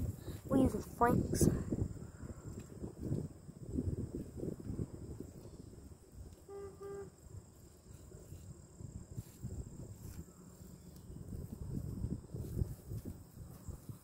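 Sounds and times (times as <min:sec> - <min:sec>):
vehicle horn beeps: 0:06.5 - 0:07.2.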